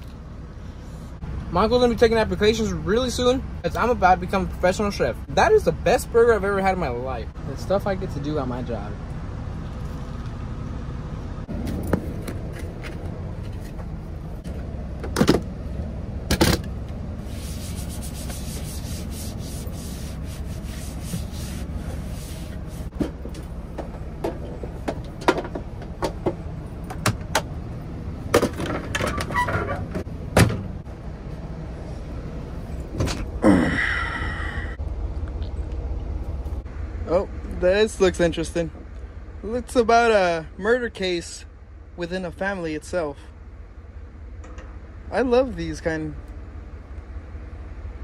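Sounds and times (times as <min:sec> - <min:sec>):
steady low hum: 0:00.0 - 0:48.0
paper napkin wiping a surface: 0:17.2 - 0:22.9.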